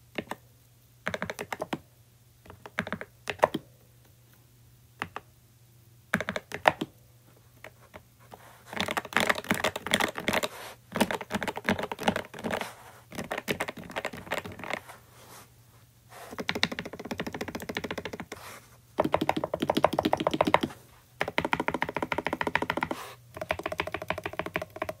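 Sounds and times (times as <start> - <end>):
mechanical keyboard typing: 1.0 - 1.8, 2.5 - 3.6, 6.1 - 6.9, 8.7 - 14.8, 16.3 - 18.4, 19.0 - 25.0.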